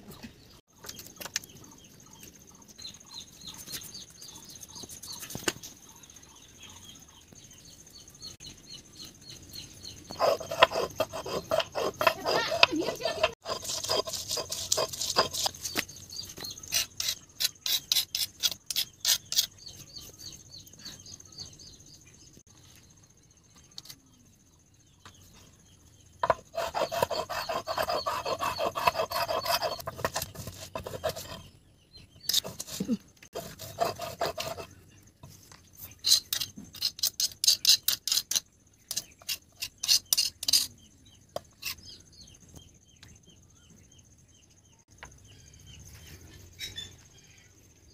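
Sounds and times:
stone muller grinding on stone slab: 0:10.1 - 0:15.7, 0:26.2 - 0:31.4, 0:32.3 - 0:34.7.

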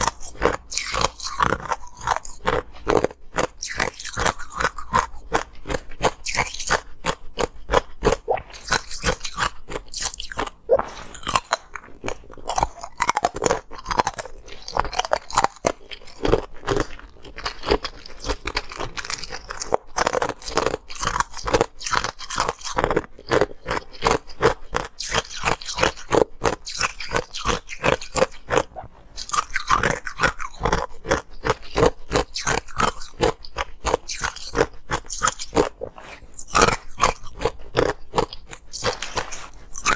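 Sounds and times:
ice being crunched by teeth: 0:00.0 - 0:39.9.

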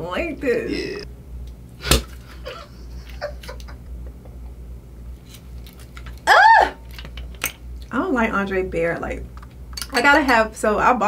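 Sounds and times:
low steady hum: 0:00.0 - 0:11.0
champagne cork popping: 0:01.8 - 0:02.2.

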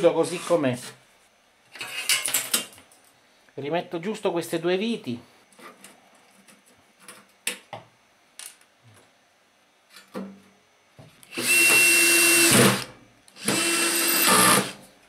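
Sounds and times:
cordless drill driving screws: 0:11.3 - 0:14.8.

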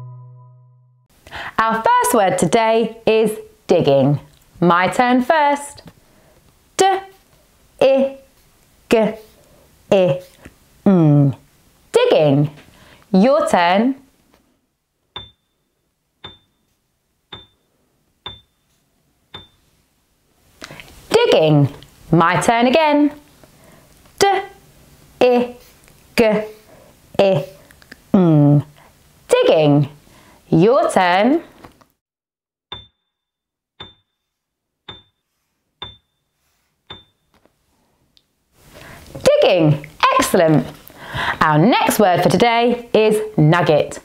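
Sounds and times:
short bright ding: 0:00.0 - 0:01.0, 0:32.7 - 0:34.2
timer ticks with high ring: 0:15.2 - 0:15.6, 0:16.2 - 0:16.7, 0:17.3 - 0:19.6, 0:33.8 - 0:34.2, 0:34.9 - 0:35.2, 0:35.8 - 0:36.2, 0:36.9 - 0:37.3.

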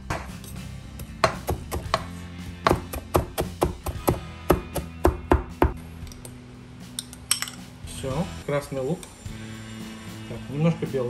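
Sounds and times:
knife chopping on plastic board: 0:01.0 - 0:05.8.

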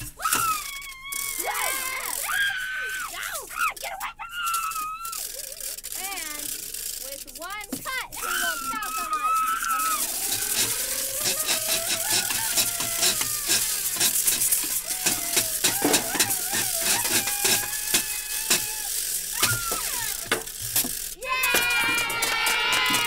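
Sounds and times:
held tones: 0:00.0 - 0:23.0
scissor snipping clicks: 0:09.0 - 0:21.1.

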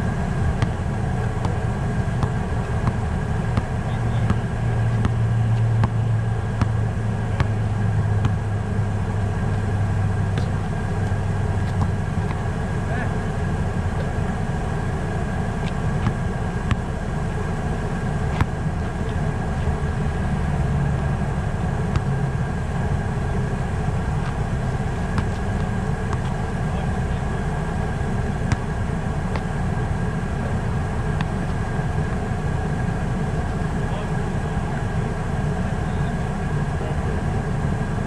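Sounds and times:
basketball bouncing on asphalt: 0:00.5 - 0:07.6, 0:08.2 - 0:08.4, 0:10.4 - 0:12.5, 0:15.6 - 0:17.0, 0:17.7 - 0:19.1, 0:21.6 - 0:22.3, 0:24.2 - 0:26.4, 0:28.4 - 0:29.6.

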